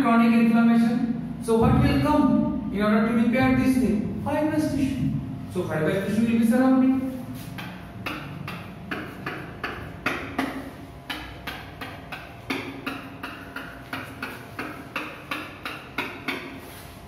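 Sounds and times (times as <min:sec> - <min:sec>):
marker pen on whiteboard: 0:05.8 - 0:17.0.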